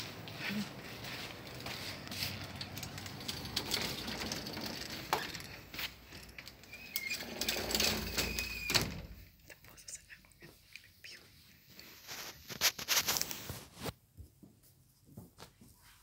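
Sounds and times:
door squeaking: 0:02.5 - 0:09.2.

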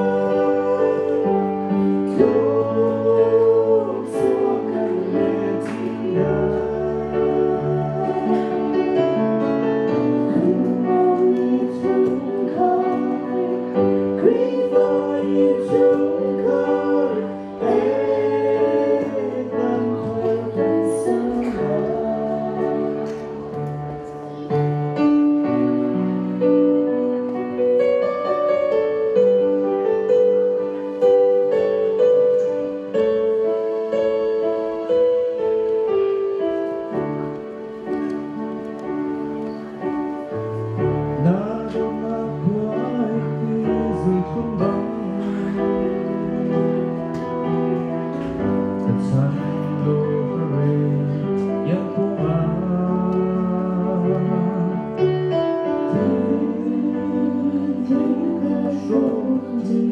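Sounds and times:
group of voices singing: 0:00.0 - 0:09.4, 0:10.1 - 0:24.2, 0:55.9 - 0:59.9
instrumental accompaniment: 0:00.0 - 0:59.9.

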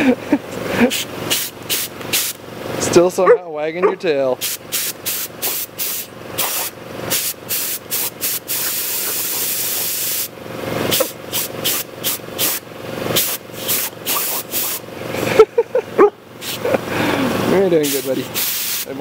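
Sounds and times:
compressed air hissing from hose: 0:00.9 - 0:02.4, 0:04.4 - 0:10.3, 0:10.9 - 0:14.8, 0:16.4 - 0:19.0.

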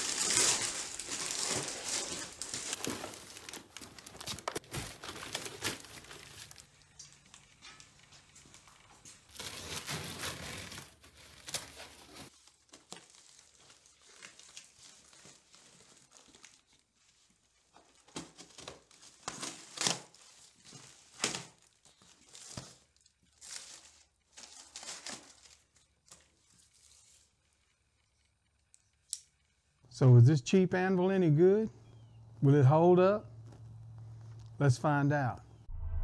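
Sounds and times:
cardboard ripping and crumpling: 0:00.0 - 0:06.8, 0:09.3 - 0:27.3.

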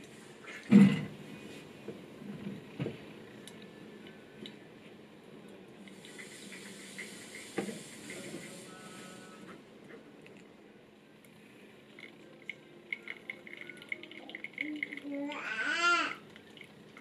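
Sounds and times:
liquid trickling into cup: 0:11.9 - 0:17.0.

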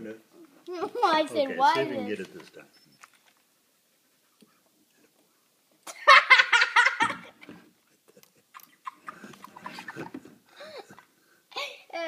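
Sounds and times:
rapid giggling: 0:06.8 - 0:11.1.

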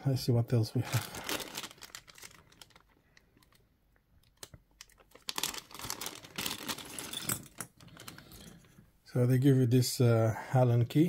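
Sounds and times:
plastic bag crinkling: 0:00.7 - 0:08.5.

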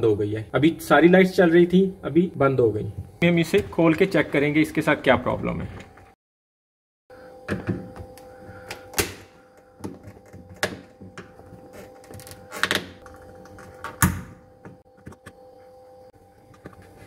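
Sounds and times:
steady hum: 0:07.1 - 0:17.0.

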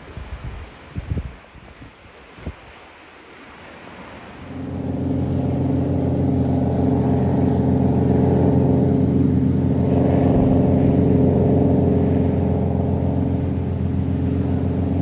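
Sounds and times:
deep steady horn tone: 0:04.5 - 0:15.0.

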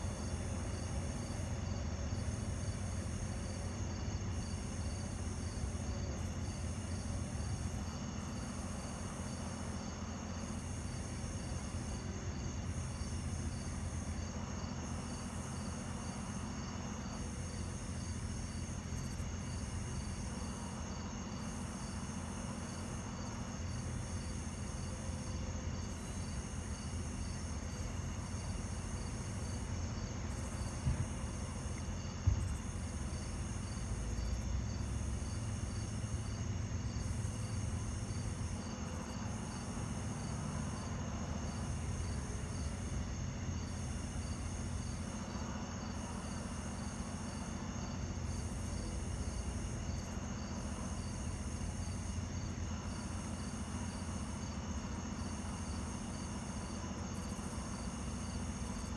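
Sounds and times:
night insects chirping: 0:00.0 - 0:58.9.

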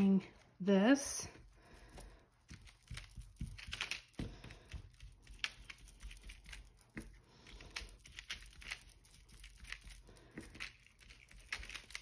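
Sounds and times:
soft taps and dabs on paper: 0:01.4 - 0:07.9.

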